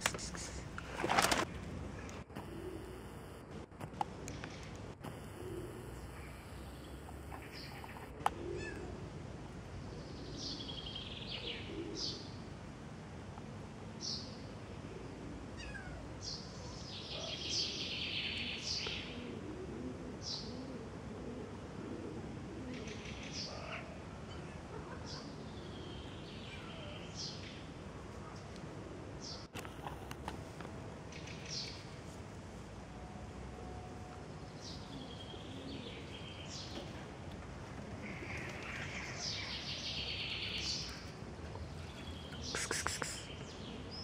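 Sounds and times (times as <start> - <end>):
low outdoor background noise: 0.0 - 44.0
small birds chirping: 2.0 - 8.8, 38.0 - 44.0
kitten mewing: 42.3 - 43.3.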